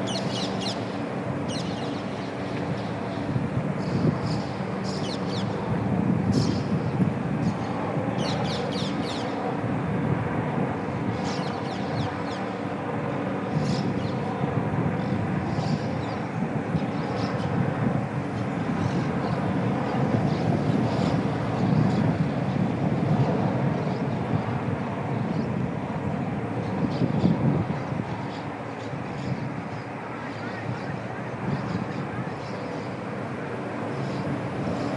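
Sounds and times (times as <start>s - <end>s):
birds chirping: 0.0s - 5.6s.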